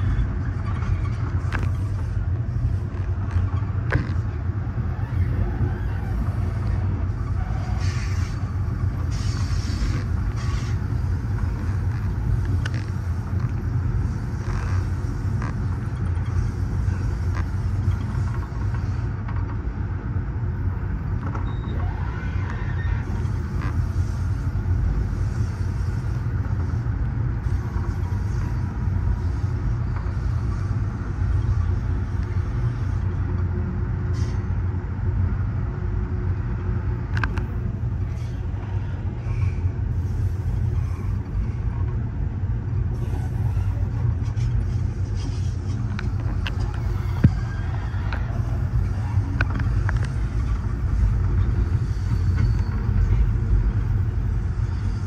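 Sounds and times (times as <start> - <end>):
train car rumbling over rails: 0.0 - 55.0.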